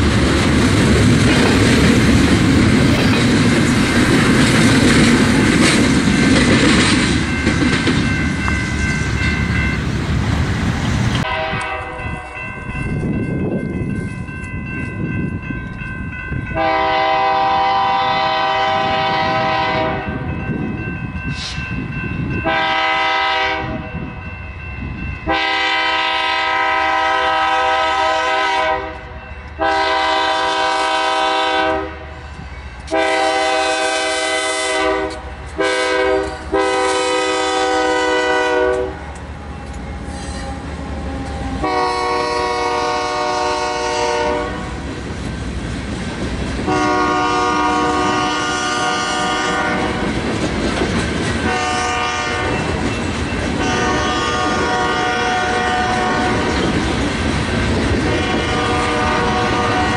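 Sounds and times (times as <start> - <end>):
wheels clattering on rail: 0.0 - 17.0, 48.7 - 59.9
train rumble: 0.0 - 59.9
locomotive air horn blasts: 11.2 - 12.4, 16.5 - 20.2, 22.4 - 23.9, 25.2 - 32.1, 32.9 - 39.1, 40.4 - 44.7, 46.7 - 50.1, 51.4 - 52.7, 53.6 - 56.6, 58.0 - 59.9.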